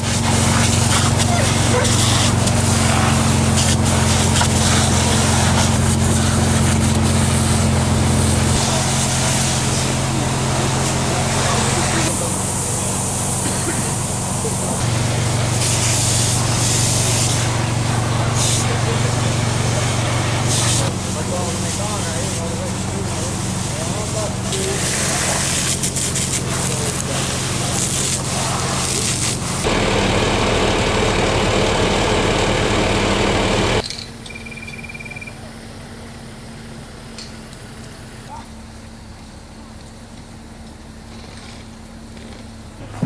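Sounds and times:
fire hose water spraying: 0.0 - 33.8
low engine hum: 0.0 - 34.3, 34.9 - 43.0
fast high beeps: 34.3 - 35.4.

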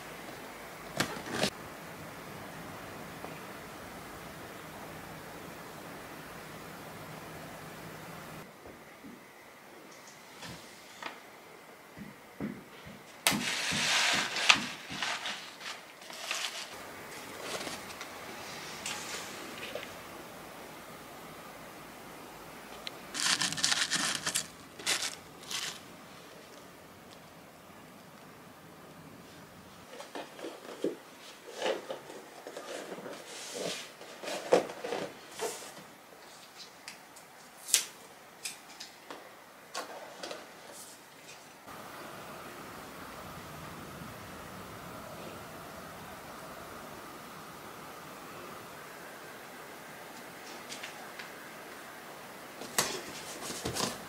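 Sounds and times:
paper packing crinkling: 13.3 - 18.1, 23.1 - 26.5.

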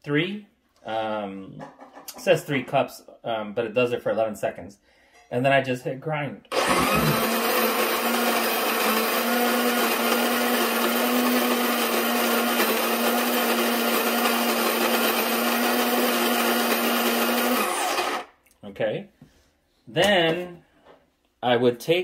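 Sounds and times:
coffee grinder grinding beans: 6.5 - 18.3.

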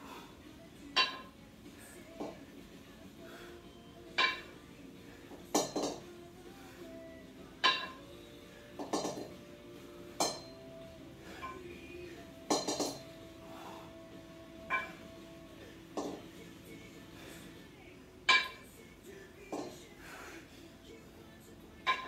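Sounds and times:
kettlebells clinking together: 1.0 - 1.3, 4.2 - 4.6, 5.5 - 6.0, 7.6 - 8.0, 8.8 - 9.3, 10.2 - 10.6, 12.4 - 13.1, 14.6 - 15.1, 18.3 - 18.6.

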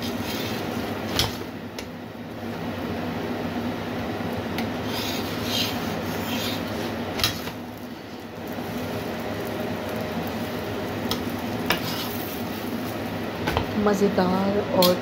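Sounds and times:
flatbread sizzling in oil: 0.0 - 1.8, 4.4 - 13.8
metal tongs scraping pan: 11.7 - 12.4.

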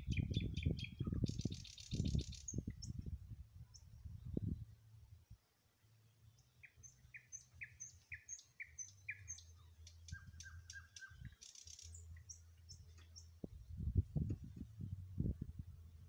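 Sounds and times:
faint songbird song: 0.0 - 16.0
thin high bird calls: 6.6 - 13.3.

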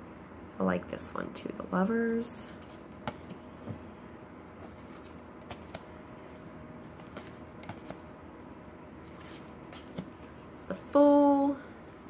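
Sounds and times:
cards clicking and tapping: 3.0 - 3.4, 4.7 - 5.9, 7.0 - 8.0, 9.1 - 10.3.

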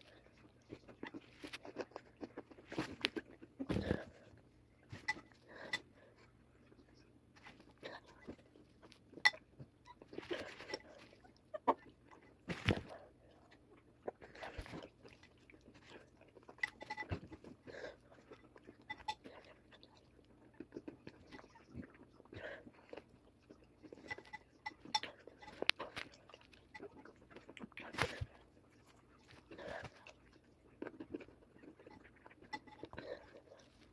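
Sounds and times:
crunchy cereal being chewed: 0.0 - 33.9.

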